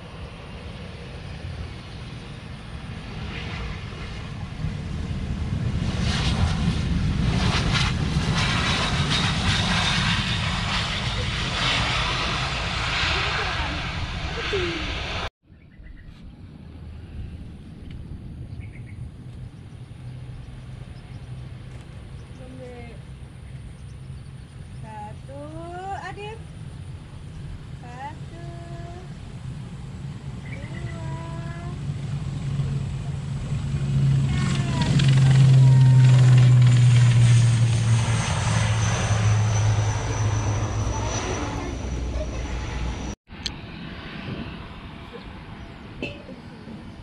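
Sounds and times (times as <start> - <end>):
propeller airliner drone: 0.0 - 47.0
steady low rumble: 0.0 - 47.0
bird chirps: 15.5 - 16.2, 18.5 - 21.4.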